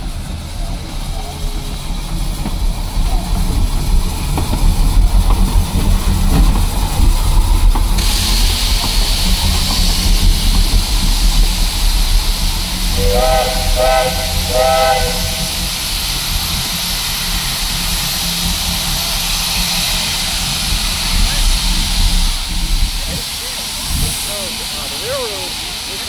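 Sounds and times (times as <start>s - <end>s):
loud hiss of steam: 0.0s - 26.0s
steam whistle blasts: 12.9s - 15.8s.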